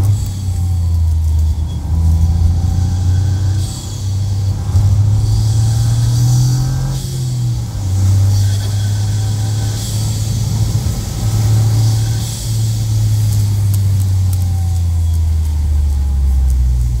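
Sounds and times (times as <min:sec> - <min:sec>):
car engine drone from inside cabin: 0:00.0 - 0:17.0.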